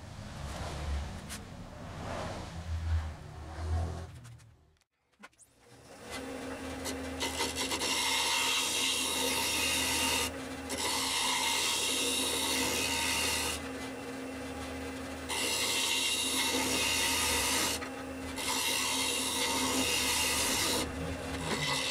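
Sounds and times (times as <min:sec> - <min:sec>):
lathe motor hum: 0:05.8 - 0:21.9
turning tool scraping wood: 0:06.0 - 0:21.9.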